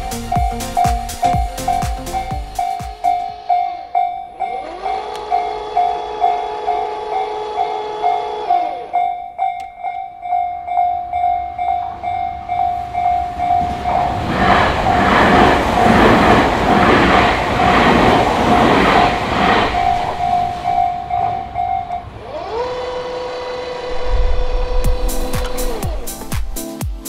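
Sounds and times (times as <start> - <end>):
level crossing bell ringing: 0.1 - 13.8, 19.9 - 22.1
train wheels clattering: 11.2 - 22.2.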